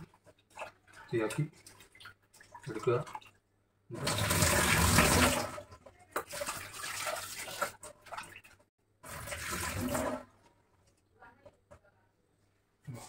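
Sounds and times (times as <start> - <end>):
light water splashing: 0.0 - 11.0
kitchen tap running: 3.9 - 10.4.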